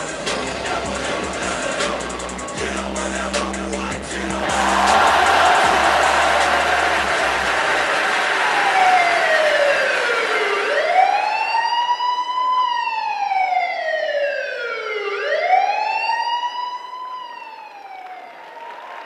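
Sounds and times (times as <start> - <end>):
wailing siren sound effect: 8.3 - 18.9.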